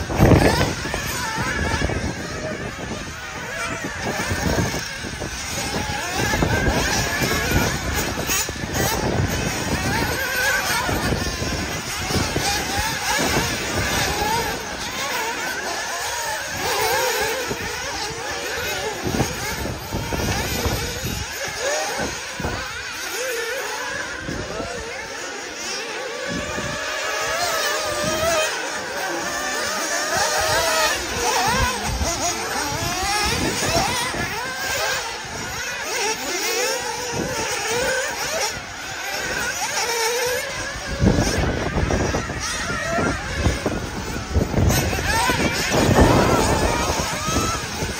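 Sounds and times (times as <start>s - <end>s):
small engines revving: 0.0s - 47.9s
wind buffeting microphone: 0.0s - 47.9s.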